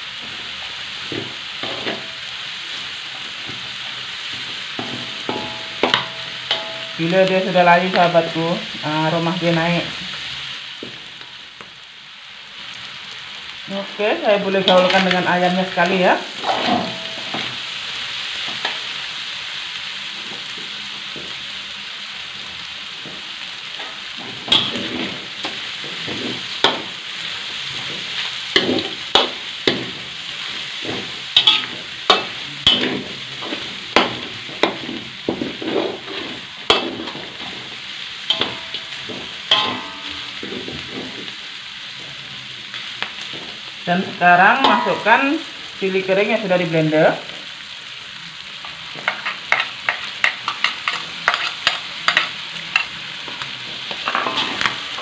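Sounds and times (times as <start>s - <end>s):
food sizzling in a wok: 0.0s - 55.0s
metal spatula scraping a pan: 3.0s - 8.1s, 14.6s - 17.7s, 23.7s - 41.5s, 49.0s - 55.0s.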